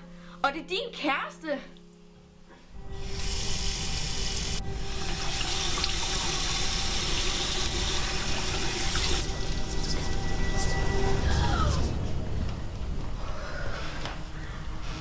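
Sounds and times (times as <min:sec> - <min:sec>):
tap water running into sink: 0:03.2 - 0:09.3.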